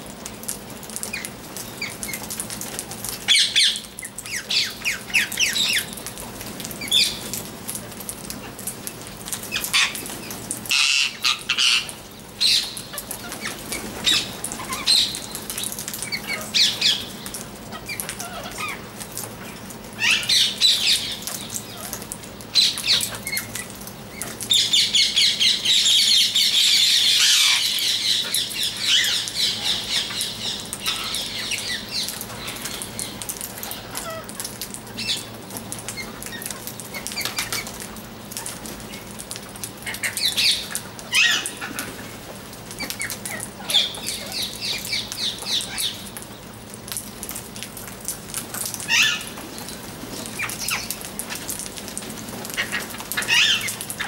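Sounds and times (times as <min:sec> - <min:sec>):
parakeets screeching: 0:10.7 - 0:15.2, 0:17.7 - 0:18.8, 0:26.4 - 0:32.8, 0:39.9 - 0:41.9, 0:48.9 - 0:49.3, 0:52.5 - 0:53.8.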